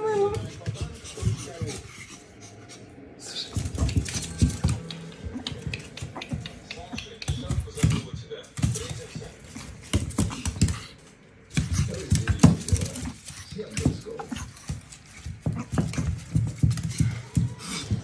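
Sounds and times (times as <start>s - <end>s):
dog claws scrabbling on wood floor: 3.3s - 8.0s, 8.6s - 18.0s.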